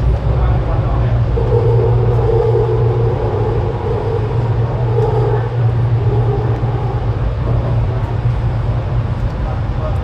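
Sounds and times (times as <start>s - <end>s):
train wheels rumbling on rails: 0.0s - 10.0s
mid-pitched tone: 1.4s - 8.3s.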